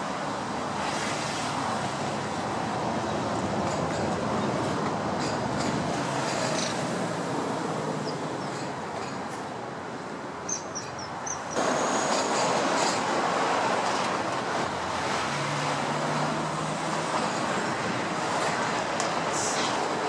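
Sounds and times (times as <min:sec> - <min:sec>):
distant city traffic: 0:00.0 - 0:20.0.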